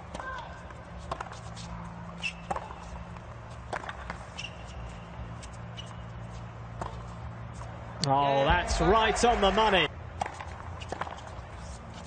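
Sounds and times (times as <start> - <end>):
low stadium hum: 0.0 - 12.0
shoes squeaking on court: 0.9 - 7.8.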